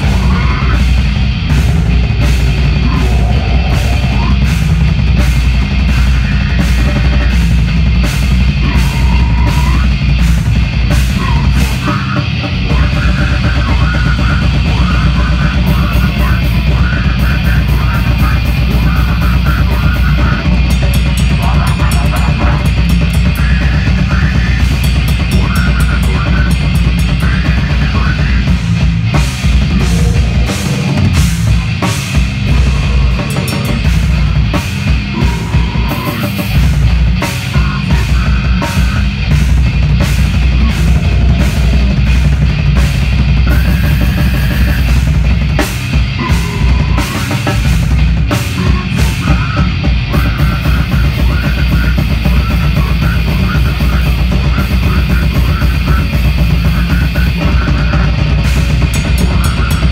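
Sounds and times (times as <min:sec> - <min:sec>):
metal band playing live: 0:00.0 - 0:59.9.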